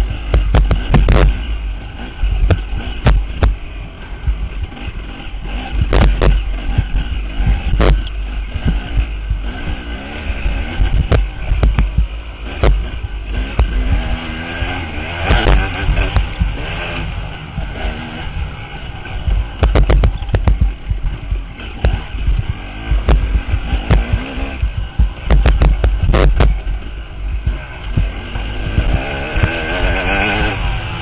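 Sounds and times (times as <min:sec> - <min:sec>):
dirt bike engine revving: 0:00.0 - 0:31.0
wind rumble on microphone: 0:00.0 - 0:31.0
bike knocking over bumps: 0:00.1 - 0:01.4, 0:10.6 - 0:16.8, 0:19.3 - 0:26.7.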